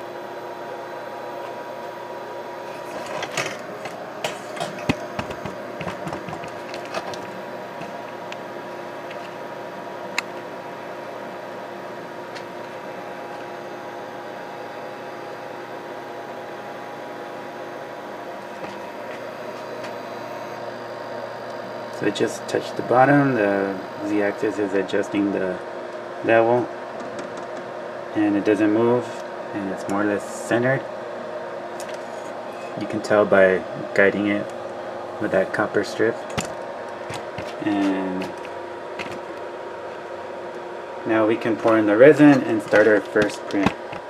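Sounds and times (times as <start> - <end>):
stepper motor humming: 0.0 - 26.2.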